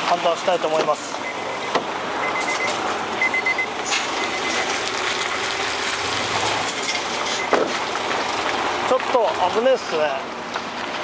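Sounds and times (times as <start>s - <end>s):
truck engine running: 0.0s - 11.0s
electronic warning beeper pips: 1.2s - 4.7s.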